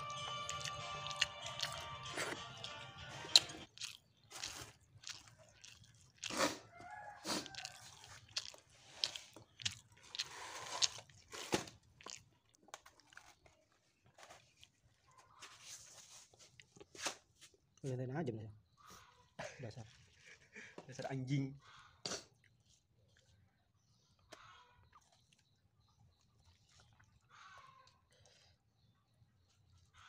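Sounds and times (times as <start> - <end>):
chewing: 0.0 - 15.6, 16.2 - 17.0, 22.0 - 23.6, 24.2 - 28.6
crunching charred fish skin: 0.1 - 13.4.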